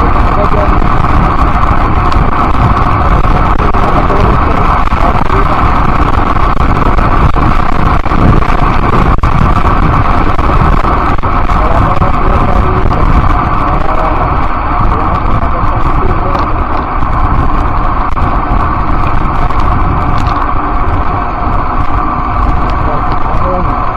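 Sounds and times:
tyre and road noise: 0.0s - 23.9s
wind rushing on microphone: 0.0s - 23.9s.

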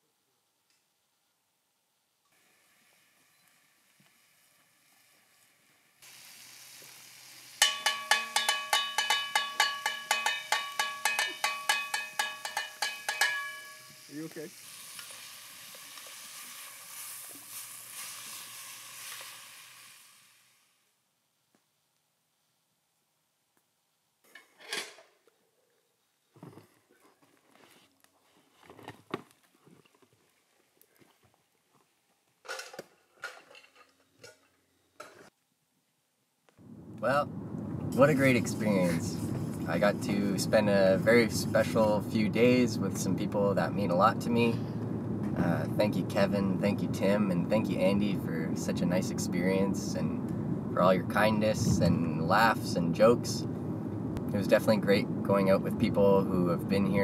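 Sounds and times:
food sizzling in a pot: 2.4s - 20.9s
metal bowl clanging: 7.6s - 14.1s.

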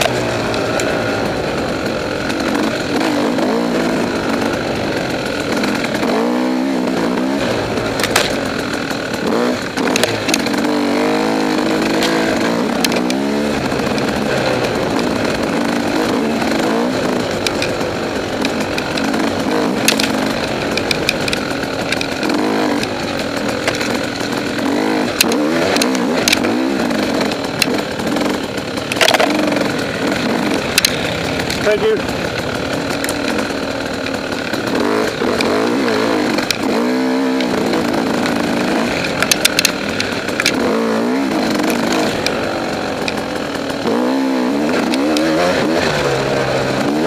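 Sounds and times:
dirt bike engine revving: 0.0s - 47.0s.

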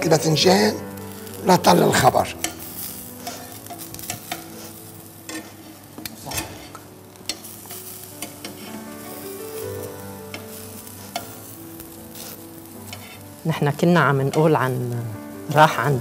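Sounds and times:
eggplant slices sizzling: 0.0s - 16.0s
metal tongs clicking on a pan: 2.4s - 4.5s, 5.3s - 9.2s, 10.3s - 11.4s, 14.1s - 14.8s.

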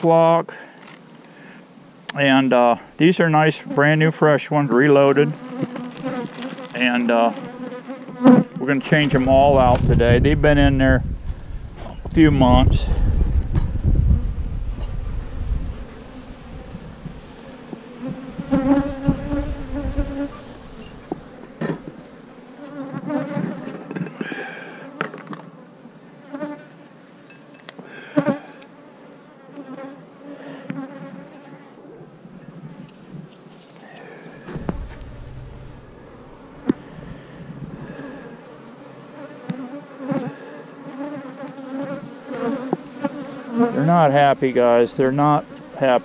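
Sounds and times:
honeybees buzzing: 3.0s - 9.4s, 13.4s - 26.9s, 32.7s - 46.0s
knocks on wooden hive: 34.5s - 36.8s.

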